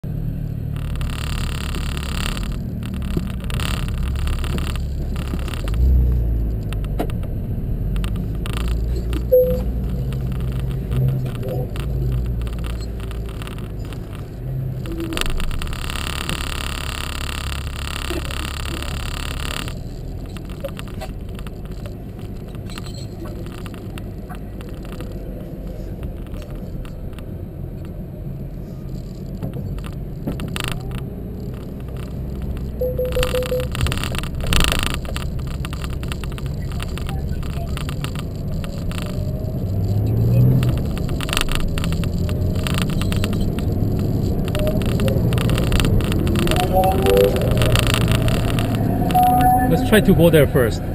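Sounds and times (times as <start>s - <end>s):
car engine low rumble: 0.0s - 50.9s
short squeak: 22.6s - 23.5s, 42.2s - 50.9s.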